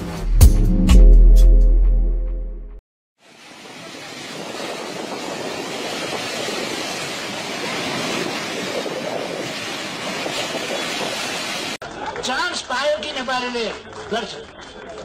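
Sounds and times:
rushing floodwater: 3.2s - 11.9s.

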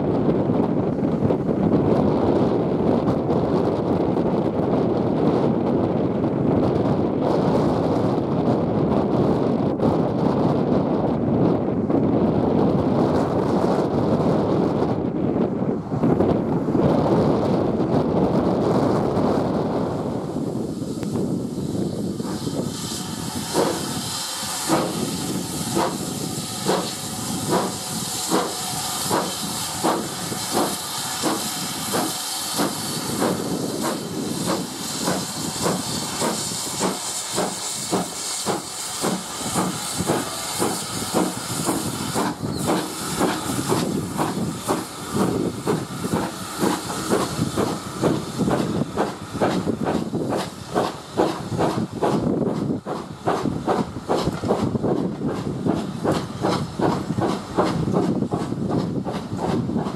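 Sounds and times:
steam locomotive exhaust beating: 12.0s - 59.9s
steam hissing: 19.5s - 59.9s
train wheels clicking over rail joints: 22.1s - 59.9s.

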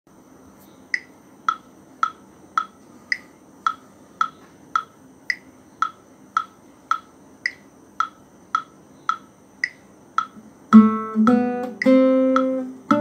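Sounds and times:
higher-pitched metronome accent click: 0.9s - 13.0s
metronome clicking: 0.9s - 13.0s.

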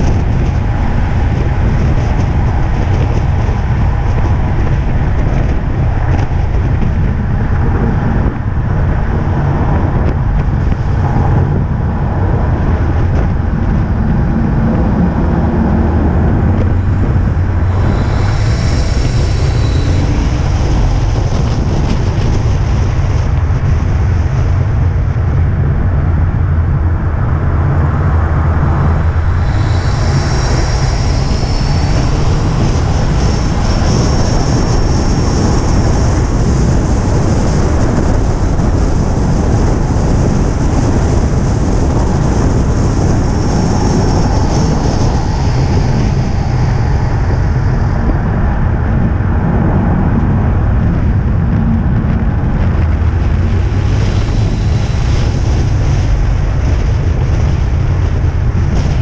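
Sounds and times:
car engine running under load: 0.0s - 59.0s
tyre and road noise: 0.0s - 59.0s
high hiss: 16.6s - 22.9s, 28.7s - 37.3s, 40.9s - 48.8s, 53.4s - 56.9s.

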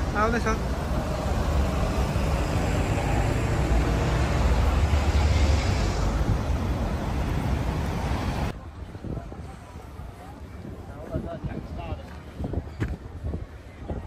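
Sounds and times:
cars and buses passing: 0.0s - 14.0s
deep traffic rumble: 0.0s - 14.0s.

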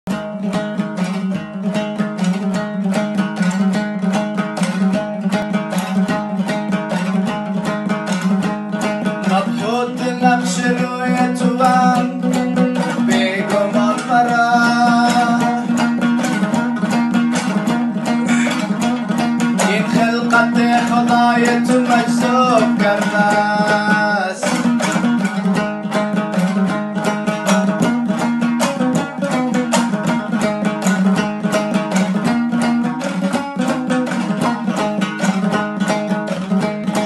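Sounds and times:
lute strummed over drone: 0.1s - 37.0s
man singing long notes: 9.3s - 15.8s, 19.6s - 24.6s.

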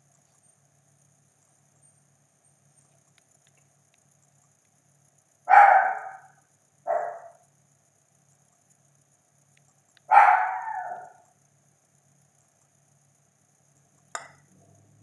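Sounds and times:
dog barking: 5.5s - 7.4s, 10.1s - 11.2s.

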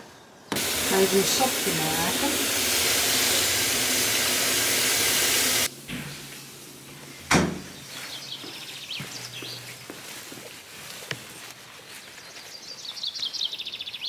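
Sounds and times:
tap water running into bucket: 0.5s - 5.7s.

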